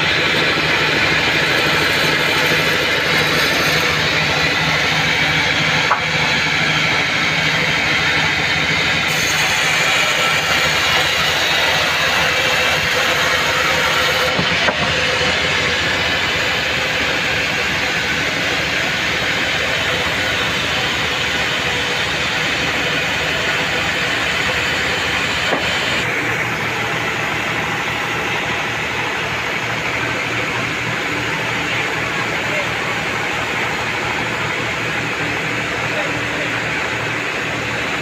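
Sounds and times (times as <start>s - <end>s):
band sawmill hiss and hum: 0.0s - 36.6s.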